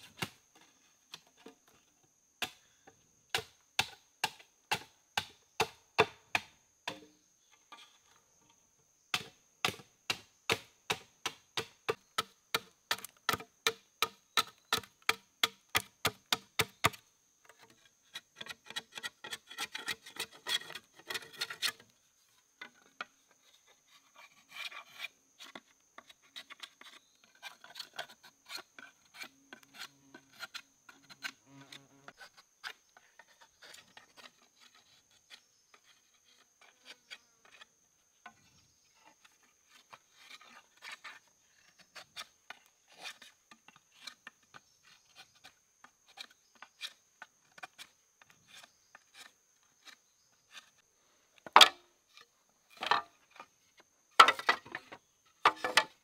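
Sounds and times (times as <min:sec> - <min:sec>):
wood scraping: 0:17.4 - 0:50.8, 0:51.4 - 0:56.0.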